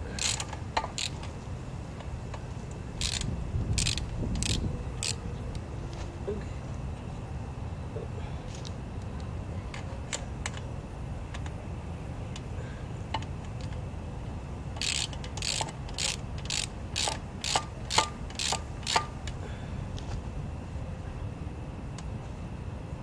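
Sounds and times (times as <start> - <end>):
ratchet wrench rasping: 0.1 - 1.3, 3.0 - 5.2, 14.8 - 19.1
ratchet wrench clicks: 0.2 - 1.3, 3.0 - 5.2, 14.8 - 19.1.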